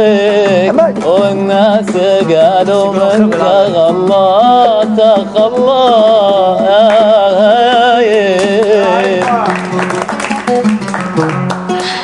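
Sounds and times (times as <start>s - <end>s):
plucked strings: 0.0s - 12.0s
people clapping: 6.8s - 7.2s, 7.9s - 12.0s.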